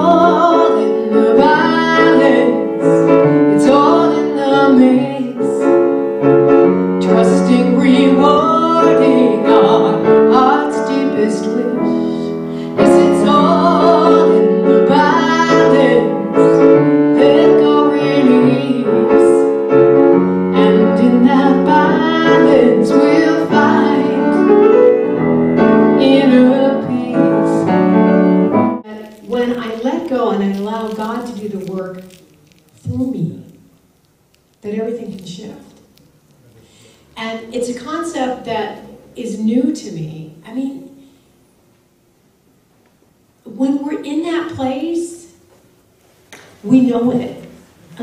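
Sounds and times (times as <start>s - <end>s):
woman singing: 0.0s - 5.8s, 7.0s - 19.6s, 20.5s - 24.7s, 25.8s - 27.8s
grand piano: 0.0s - 41.7s.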